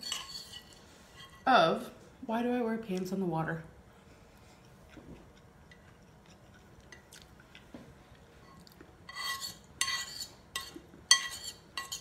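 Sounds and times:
metal spoon clinking on ceramic bowl: 0.0 - 1.4, 9.1 - 12.0.

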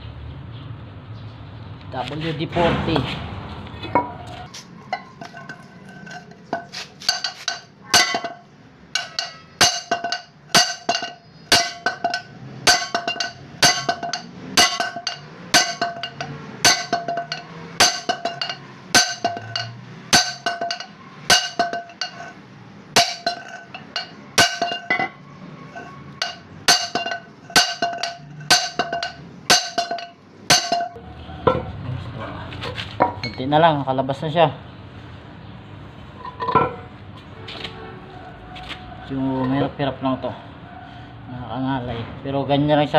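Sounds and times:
hammer striking steel: 4.9 - 22.4, 23.0 - 25.2, 25.8 - 31.7.

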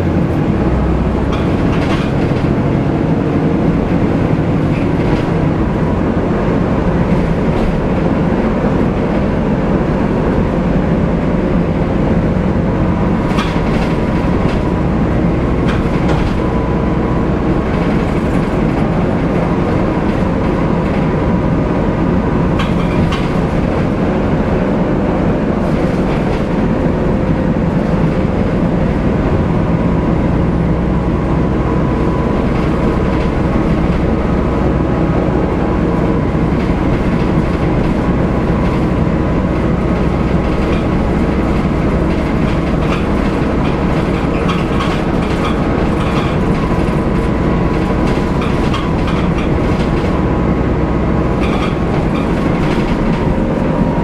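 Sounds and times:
bus engine drone: 0.0 - 54.0
body rattles and knocks: 0.6 - 2.8, 13.1 - 16.6, 36.5 - 50.2, 51.4 - 53.7.

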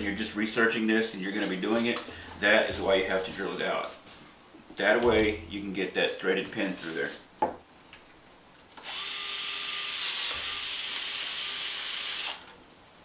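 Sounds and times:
cordless screwdriver drilling plastic: 8.8 - 12.5.

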